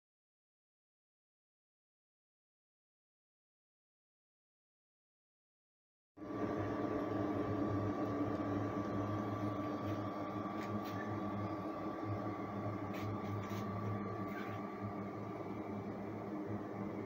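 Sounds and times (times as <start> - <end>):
portable cooler humming: 6.2 - 17.0
thin steady whine: 6.2 - 17.0.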